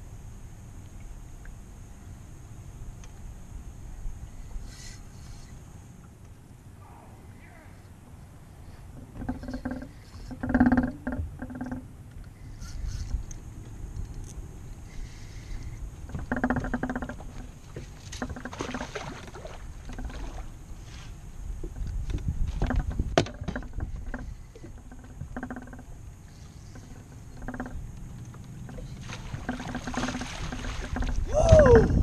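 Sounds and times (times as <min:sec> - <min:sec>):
wind rumble: 0:12.4 - 0:26.2, 0:27.2 - 0:32.0
fish splashing in water: 0:18.4 - 0:20.6, 0:28.8 - 0:31.3.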